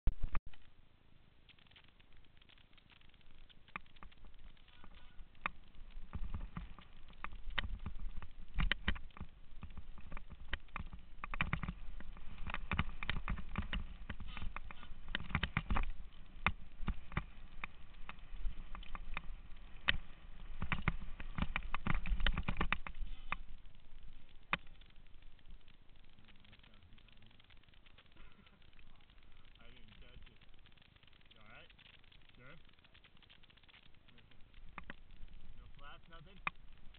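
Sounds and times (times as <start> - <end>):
low rumble of tyre noise: 0.1 - 36.9
bike clicks and knocks: 3.7 - 23.6.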